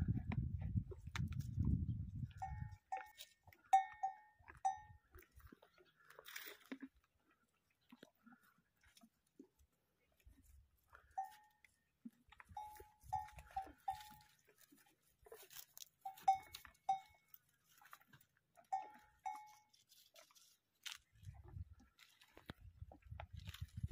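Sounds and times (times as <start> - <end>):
camel crunching bone: 0.0 - 23.9
small bell clinking: 2.4 - 4.9, 12.6 - 14.2, 18.7 - 19.7.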